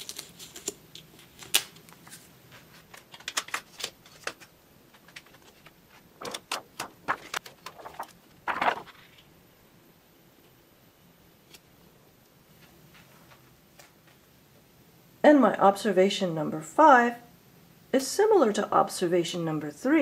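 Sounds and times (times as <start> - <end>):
paper and plastic sheets crackling: 0.0 - 9.3
plastic sheet sliding rustle: 6.2 - 9.3.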